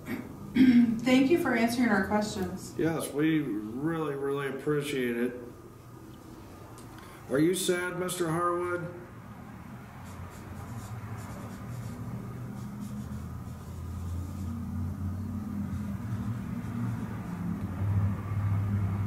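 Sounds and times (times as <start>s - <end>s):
faint scratching: 10.0s - 17.5s
low rumbling hum: 10.8s - 19.0s.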